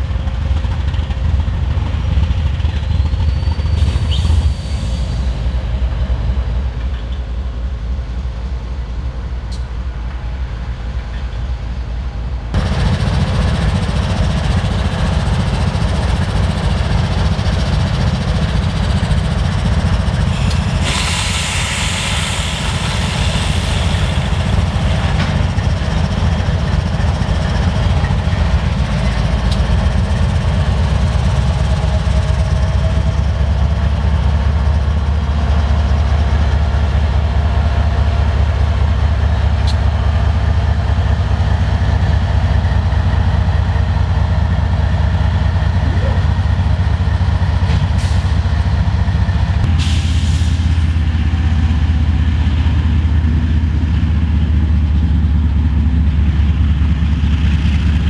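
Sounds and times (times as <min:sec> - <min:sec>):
diesel locomotive drone: 0:00.0 - 0:58.0
air hissing: 0:20.2 - 0:25.1.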